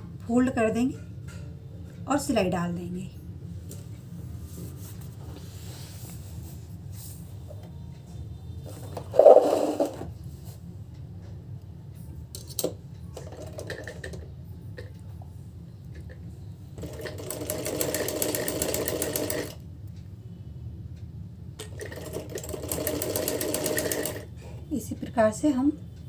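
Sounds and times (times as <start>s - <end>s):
sewing machine rattling: 9.1s - 10.0s, 13.2s - 14.2s, 16.8s - 19.6s, 21.6s - 24.3s.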